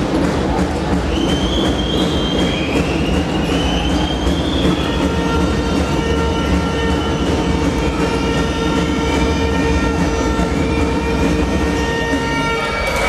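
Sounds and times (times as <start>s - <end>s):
arena crowd noise: 0.0s - 13.0s.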